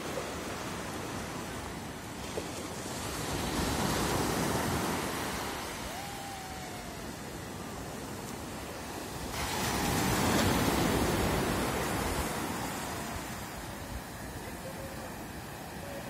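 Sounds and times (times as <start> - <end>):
ocean surf washing up beach: 0.0 - 16.0
wave swelling: 5.0 - 14.8.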